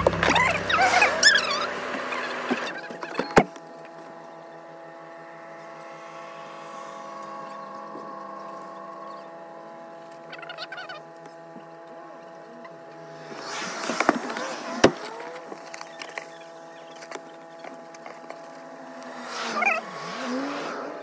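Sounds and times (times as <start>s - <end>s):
short warbling call: 0.0s - 2.9s
steady hum inside car: 0.0s - 21.0s.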